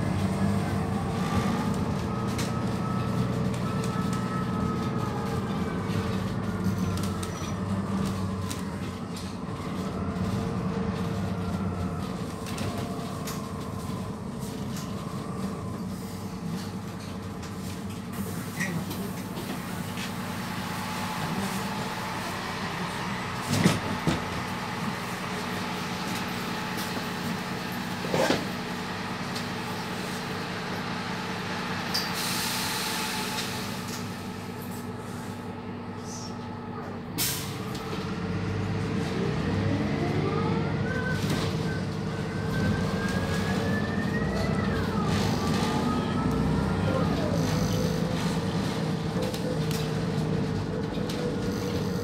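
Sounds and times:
bus diesel engine: 0:00.0 - 0:52.0
air brake hiss: 0:32.0 - 0:33.8, 0:37.2 - 0:37.6.

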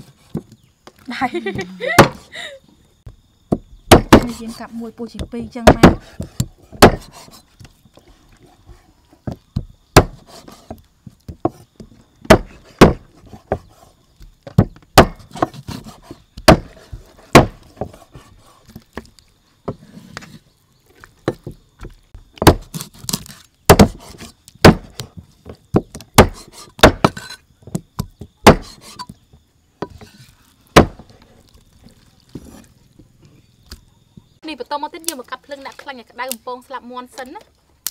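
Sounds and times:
cleaver chopping on wooden block: 0:03.5 - 0:04.4, 0:05.2 - 0:07.4, 0:09.6 - 0:11.6, 0:12.2 - 0:13.7, 0:14.5 - 0:18.0, 0:21.2 - 0:25.1, 0:25.7 - 0:29.1, 0:30.8 - 0:31.1.

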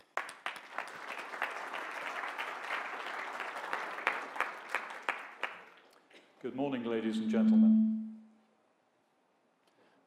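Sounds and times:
audience clapping: 0:00.0 - 0:06.0.

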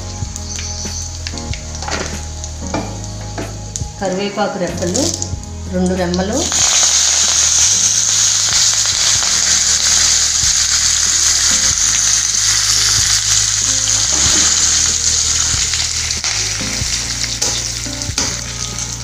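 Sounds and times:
spices sizzling in hot oil: 0:00.0 - 0:19.0.

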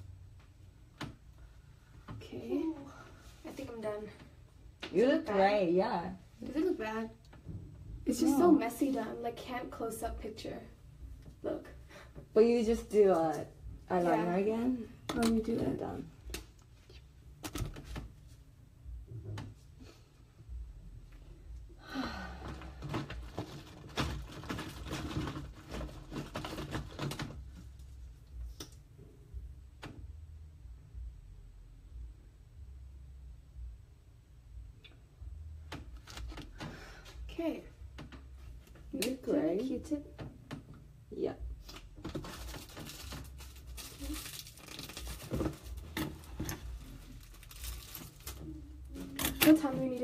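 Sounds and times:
rustles of objects handled: 0:41.6 - 0:50.0.

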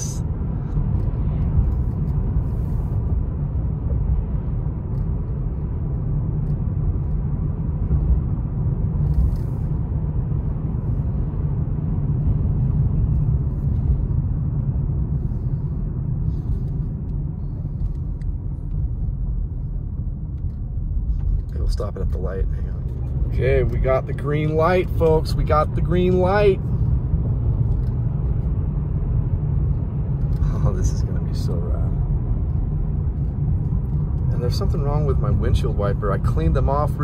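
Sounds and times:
car road rumble on wet road: 0:00.0 - 0:37.0.

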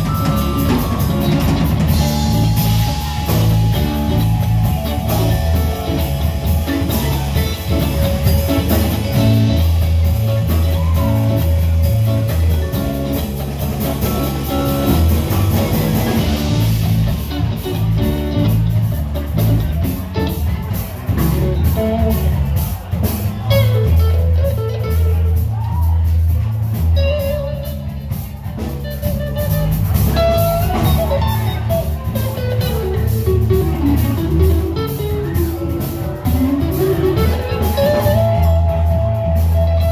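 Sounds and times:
mallet keyboard: 0:00.0 - 0:17.0
drum kit: 0:00.0 - 0:39.9
electric bass line: 0:00.0 - 0:39.9
electric guitar: 0:00.0 - 0:39.9.

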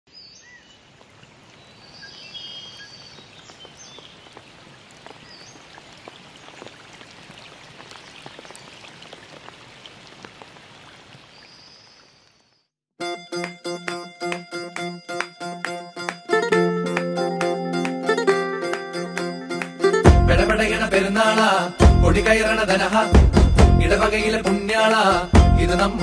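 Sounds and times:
rain dripping on leaves: 0:00.7 - 0:12.5
high chirping calls: 0:01.5 - 0:04.5.

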